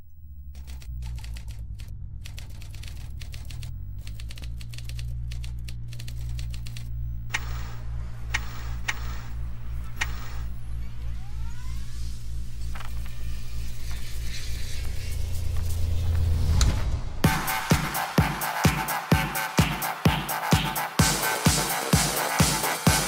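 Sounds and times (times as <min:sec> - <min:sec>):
pulsing deep bass: 0:00.0 - 0:23.0
short rising sweep: 0:00.4 - 0:21.8
rapid irregular clicking: 0:00.5 - 0:16.0.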